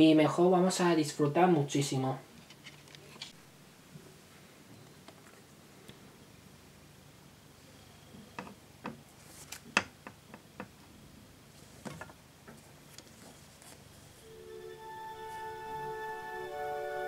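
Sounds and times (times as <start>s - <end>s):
music: 14.2s - 17.0s.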